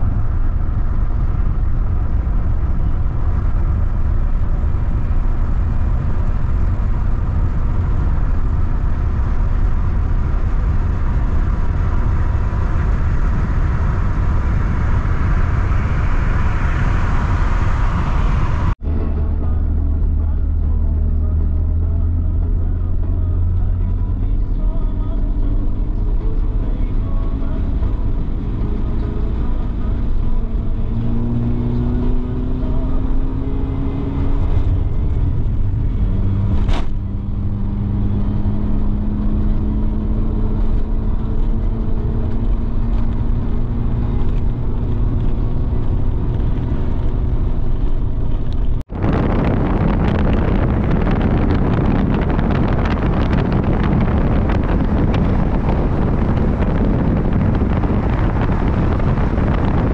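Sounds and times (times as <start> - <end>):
vehicle humming: 0.0 - 59.9
loud even rushing noise: 10.6 - 19.4, 45.7 - 59.9.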